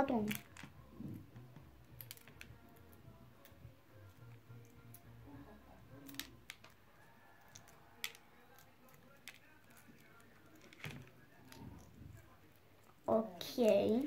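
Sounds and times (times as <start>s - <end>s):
egg shell cracking: 6.0s - 13.0s.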